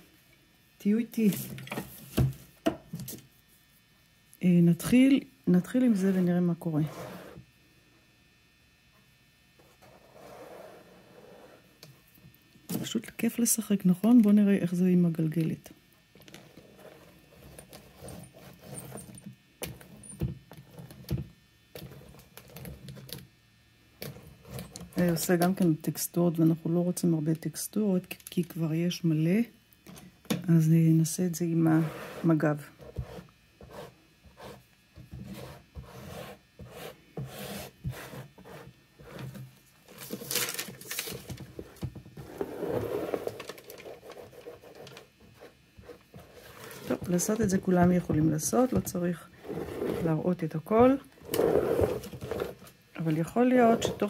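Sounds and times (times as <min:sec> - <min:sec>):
squeegee scraping canvas: 0:35.3 - 0:39.3, 0:42.2 - 0:44.8, 0:49.4 - 0:50.2, 0:51.2 - 0:52.7
roller scraping through wet paint: 0:51.3 - 0:52.5.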